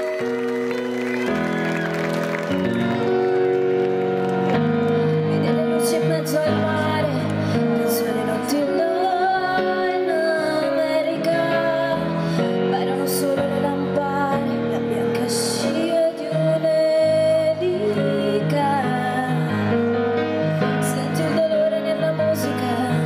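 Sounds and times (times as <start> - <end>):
woman singing: 5.2 - 23.0.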